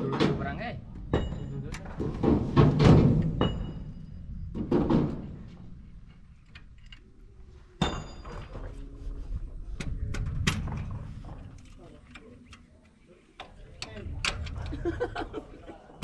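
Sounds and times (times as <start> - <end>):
sharp metallic clank: 1.1 - 5.4, 7.8 - 8.6.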